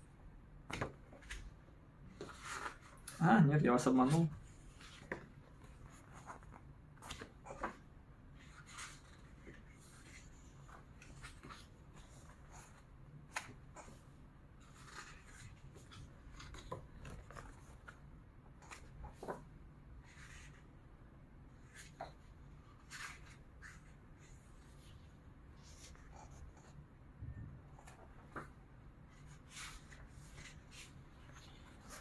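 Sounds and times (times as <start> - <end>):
paper pages turning: 0.7 - 3.2, 8.4 - 14.0, 14.6 - 18.0, 21.6 - 25.0, 27.8 - 32.0.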